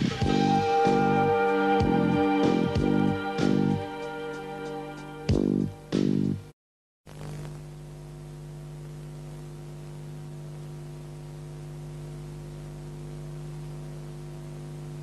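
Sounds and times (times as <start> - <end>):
electrical mains hum: 7.1 - 15.0.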